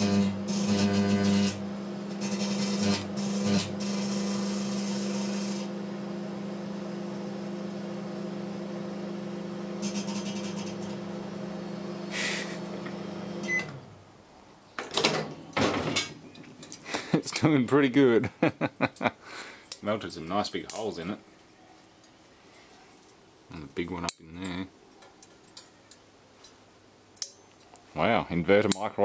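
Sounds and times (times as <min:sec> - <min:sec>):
electrical arcing crackle: 0:00.0 - 0:01.6, 0:02.2 - 0:05.7
microwave oven humming: 0:00.0 - 0:13.9.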